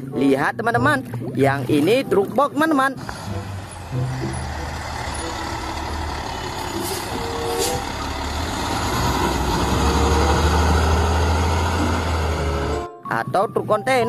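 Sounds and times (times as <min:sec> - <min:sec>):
truck diesel engine rumble: 0:03.0 - 0:12.9.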